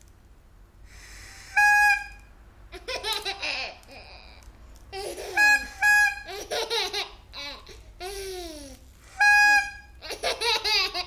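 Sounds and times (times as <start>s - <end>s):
toy horn toots: 0.9s - 2.3s, 5.3s - 6.4s, 9.1s - 10.0s
baby laughing: 2.7s - 8.8s, 9.6s - 11.0s.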